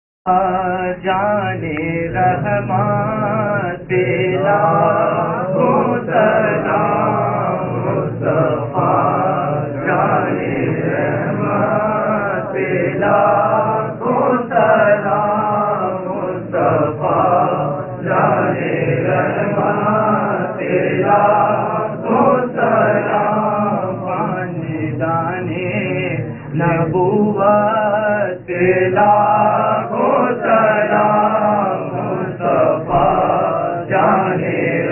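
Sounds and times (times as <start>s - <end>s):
man reciting: 0.3s - 34.9s
men chanting in unison: 0.3s - 34.9s.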